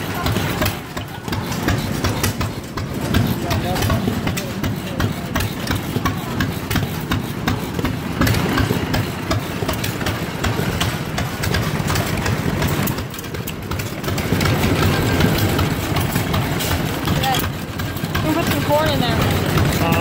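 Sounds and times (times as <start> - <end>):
old gasoline engines running: 0.0 - 20.0.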